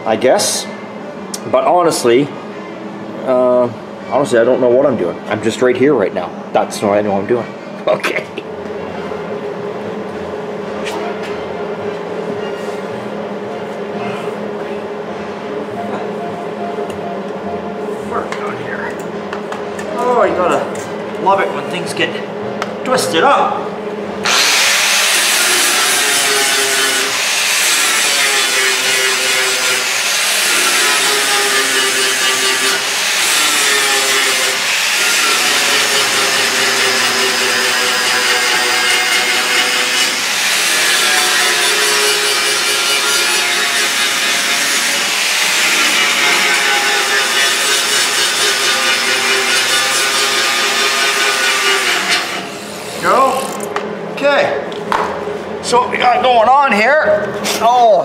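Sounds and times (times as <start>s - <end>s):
angle grinder grinding steel: 24.3s - 53.6s.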